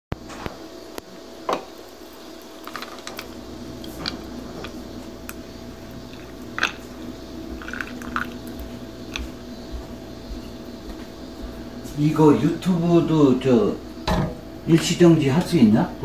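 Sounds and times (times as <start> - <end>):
low steady hum: 0.2 - 16.0
coffee pouring over ice: 1.7 - 9.4
ice cracking and clicking: 1.8 - 9.3.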